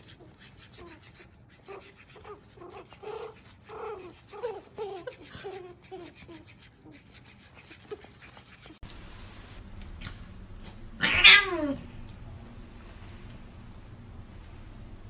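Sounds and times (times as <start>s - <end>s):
cat meowing: 11.0s - 11.8s.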